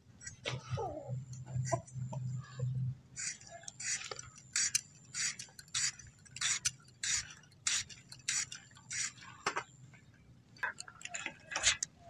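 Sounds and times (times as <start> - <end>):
potato peel scraping on blade: 3.2 - 9.2.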